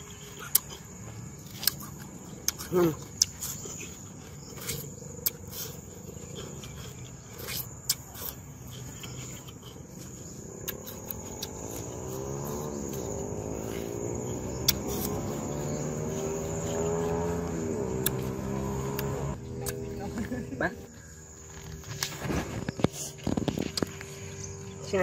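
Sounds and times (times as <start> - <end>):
crunchy fruit chewing: 0.0 - 25.0
insects droning: 0.0 - 25.0
low wavering hum: 8.4 - 25.0.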